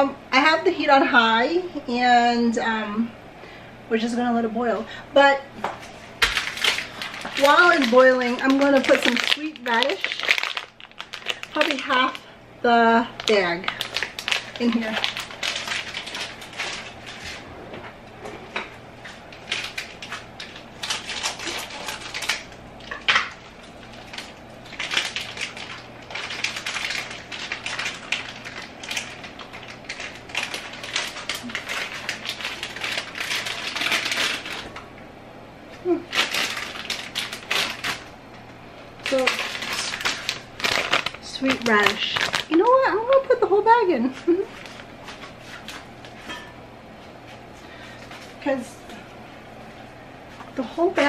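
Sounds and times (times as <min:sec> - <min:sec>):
plastic bag crinkling: 0:05.8 - 0:12.4, 0:13.0 - 0:17.5, 0:19.0 - 0:34.8, 0:35.9 - 0:38.1, 0:39.0 - 0:46.4
kitchenware clinking: 0:46.2 - 0:46.6.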